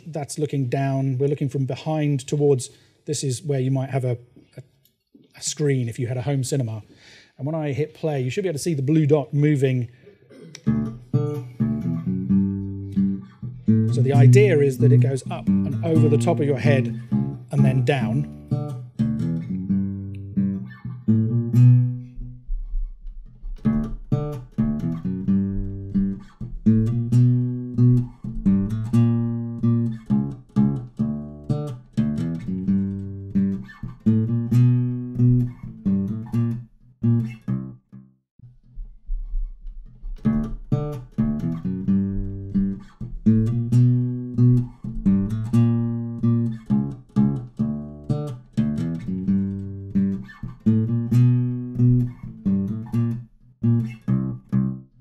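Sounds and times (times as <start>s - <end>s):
acoustic bass guitar: 10.4s - 55.0s
ukuleles playing: 13.8s - 18.4s.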